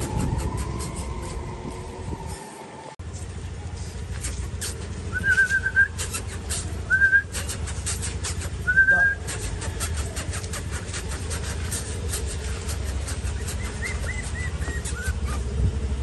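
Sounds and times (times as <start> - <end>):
steady low rumble: 0.0 - 16.0
short high whistles: 4.2 - 11.8.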